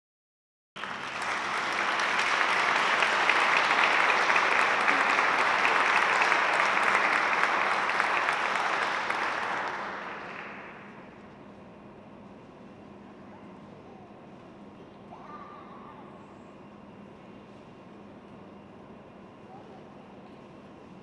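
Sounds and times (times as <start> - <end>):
audience applauding: 0.8 - 11.2.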